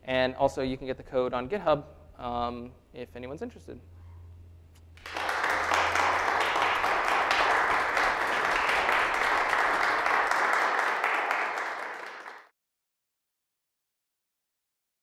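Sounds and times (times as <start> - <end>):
audience applauding: 5.0 - 12.5.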